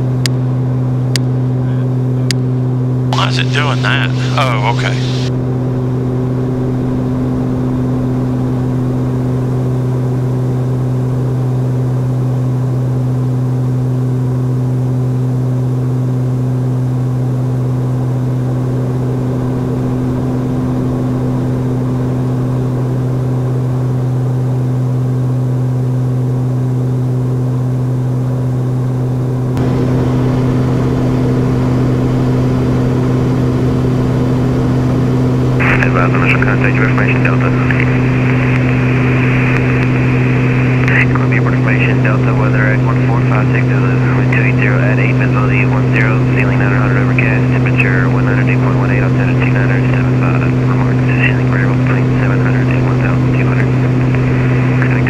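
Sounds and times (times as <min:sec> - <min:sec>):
turboprop cabin drone: 0:00.0 - 0:55.0.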